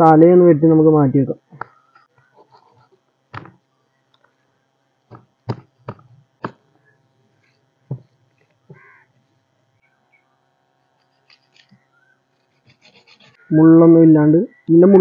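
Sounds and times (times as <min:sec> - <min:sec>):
crow cawing: 0:08.7 - 0:09.1.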